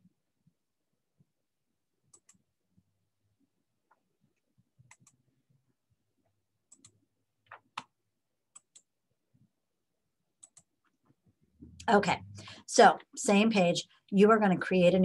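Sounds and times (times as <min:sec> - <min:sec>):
computer mouse clicks: 0:02.1 - 0:02.4, 0:04.8 - 0:05.3, 0:06.7 - 0:08.9, 0:10.4 - 0:10.9.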